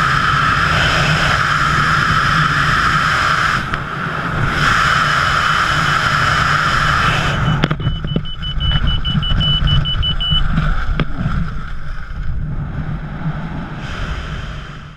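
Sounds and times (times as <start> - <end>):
freefall wind roaring: 0.0 - 7.8, 10.7 - 14.9
wind buffeting rumble: 0.0 - 14.9
high electronic beeping tone: 7.4 - 10.6.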